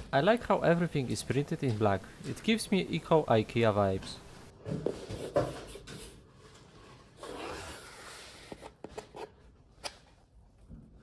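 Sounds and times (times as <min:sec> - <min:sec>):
cardboard scrape: 0:06.8 - 0:09.3.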